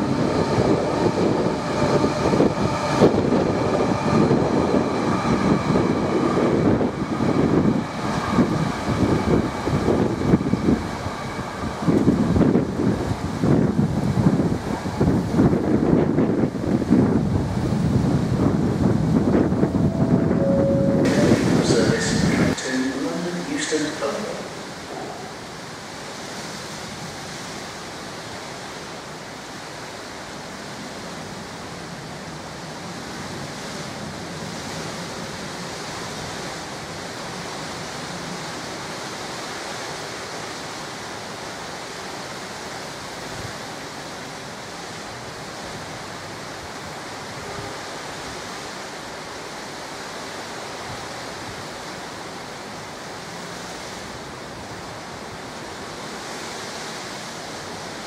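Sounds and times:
rain and wind hiss: 0.0s - 58.0s.

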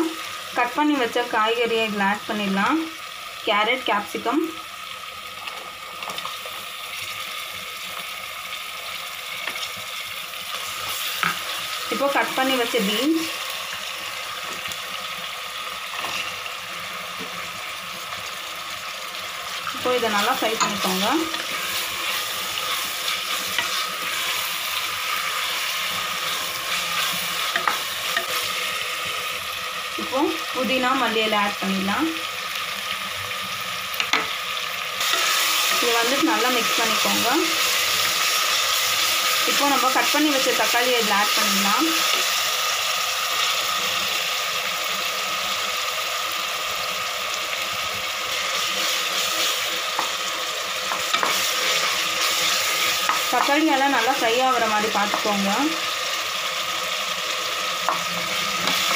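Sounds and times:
vegetables sizzling in oil: 0.0s - 58.9s
spatula scraping pan: 19.5s - 28.7s, 50.9s - 53.6s.

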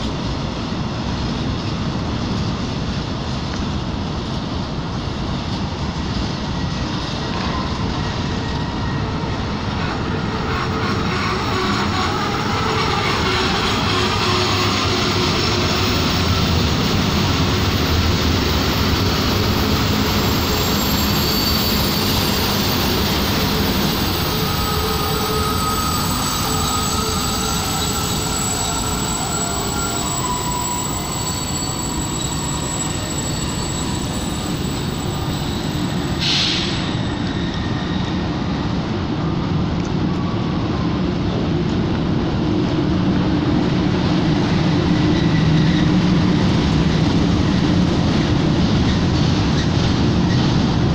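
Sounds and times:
locomotive engine drone: 0.0s - 50.9s
high wheel squeals: 7.0s - 38.9s, 44.5s - 47.8s
brief hiss: 36.2s - 37.0s.

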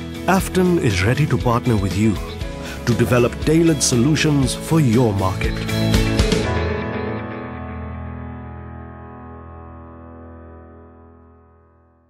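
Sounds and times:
background music held chord: 0.0s - 11.8s.

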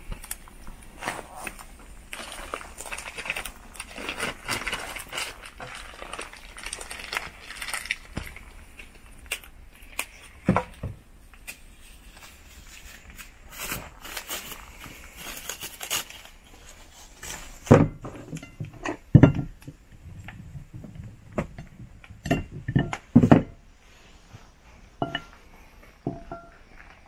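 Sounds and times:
tableware knocking and clinking: 21.4s - 23.6s, 25.0s - 25.4s, 26.1s - 26.6s.

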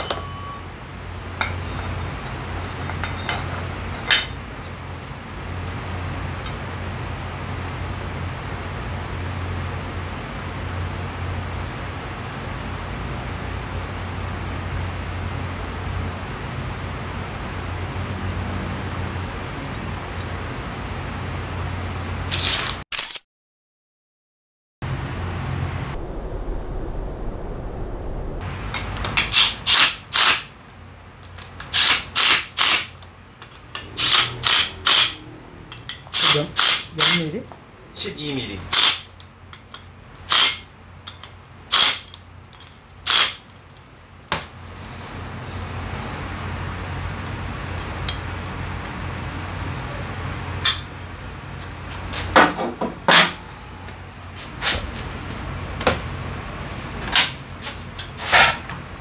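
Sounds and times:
metal tools clanking on steel: 0.0s - 0.6s, 1.4s - 2.0s, 2.6s - 4.8s, 31.3s - 37.4s, 38.7s - 43.8s, 50.5s - 51.0s, 51.8s - 54.0s, 57.0s - 58.7s
impact driver bursts: 31.7s - 33.0s, 33.9s - 35.2s, 36.1s - 37.3s.

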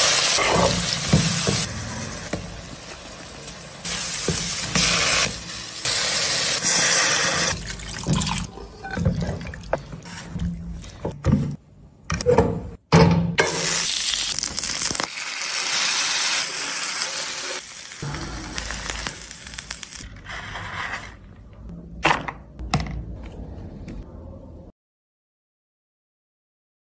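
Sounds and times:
food sizzling in butter: 13.6s - 20.0s.

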